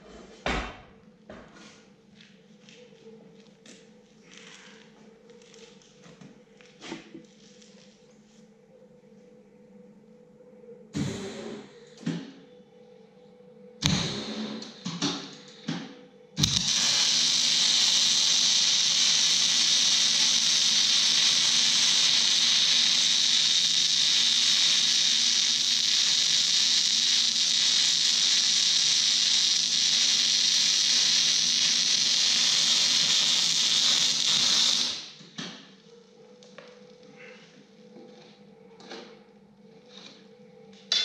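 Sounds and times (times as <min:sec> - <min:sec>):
arc welding crackling hiss: 0:13.8 - 0:15.3, 0:16.4 - 0:35.3.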